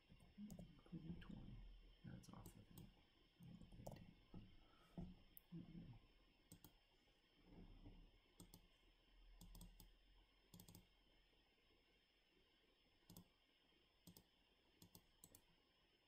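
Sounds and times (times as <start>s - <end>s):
steady low hum: 0.0s - 10.0s
mouse and keyboard clicks: 8.4s - 8.6s, 9.4s - 9.9s, 10.5s - 10.8s, 13.1s - 13.3s, 14.1s - 15.4s.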